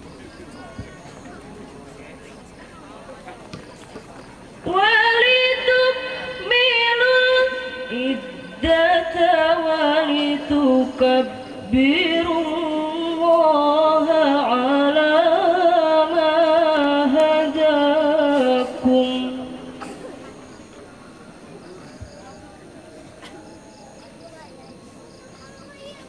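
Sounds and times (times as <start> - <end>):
girl reciting melodically: 4.6 - 20.0.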